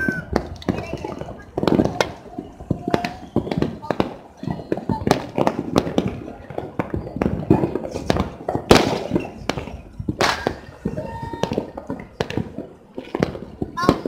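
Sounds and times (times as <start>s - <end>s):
firecrackers and fireworks banging: 0.0s - 14.0s.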